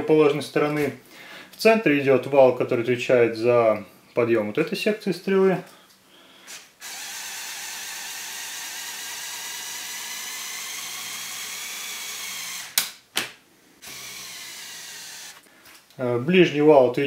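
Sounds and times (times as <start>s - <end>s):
toy motor whining: 6.8s - 12.8s, 13.8s - 15.4s.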